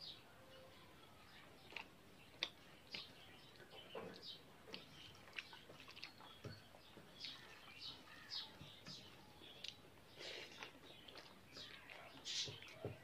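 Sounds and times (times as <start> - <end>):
chewing smacks and clicks: 1.6 - 6.5, 9.6 - 12.8.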